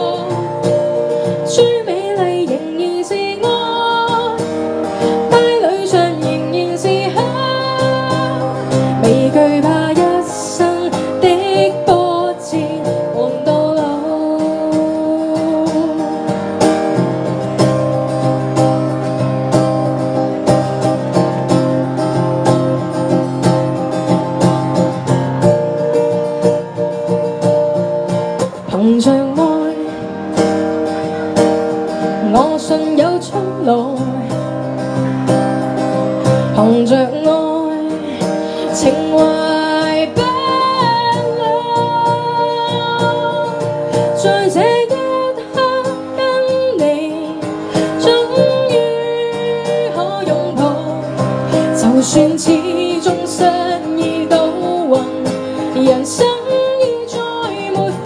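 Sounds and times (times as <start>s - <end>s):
woman singing pop ballad: 0.0s - 16.4s, 28.7s - 30.1s, 32.2s - 34.6s, 36.3s - 58.0s
strummed acoustic guitar: 0.0s - 58.0s.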